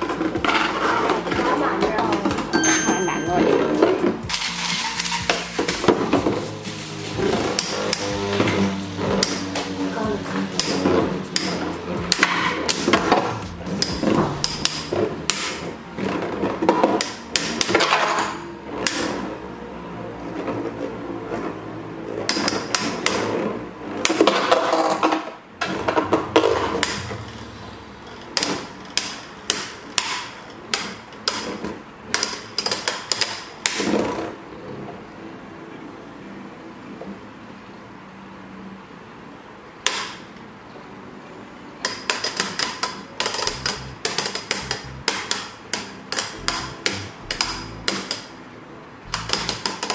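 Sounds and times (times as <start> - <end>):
metal spinning tops clacking: 4.2 - 5.9, 42.0 - 48.3.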